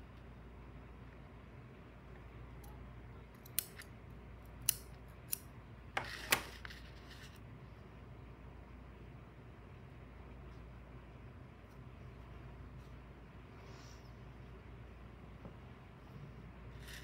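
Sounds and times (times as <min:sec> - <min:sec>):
scissors snipping: 0:03.4 - 0:03.9, 0:04.6 - 0:05.5.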